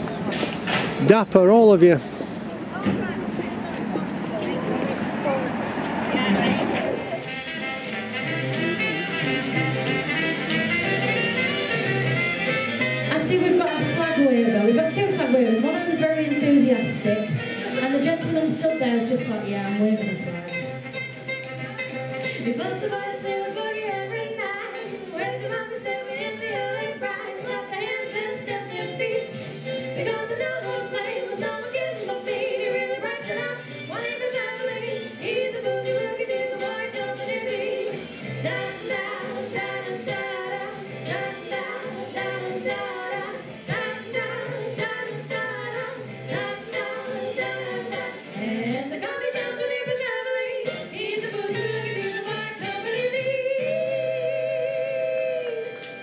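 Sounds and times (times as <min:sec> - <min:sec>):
backing track with bass line: 0:07.0 - 0:17.2
two women singing: 0:13.0 - 0:20.7, 0:22.2 - 0:56.0.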